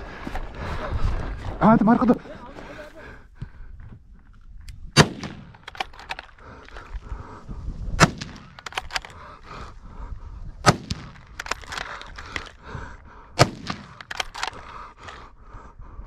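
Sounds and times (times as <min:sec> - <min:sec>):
rifle shots: 0:05.0 - 0:06.2, 0:08.0 - 0:09.1, 0:10.6 - 0:12.2, 0:13.4 - 0:14.6.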